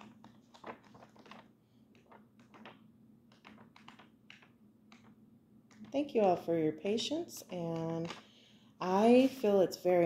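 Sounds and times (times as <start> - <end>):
hands tapping and clicking: 0.0 - 6.0.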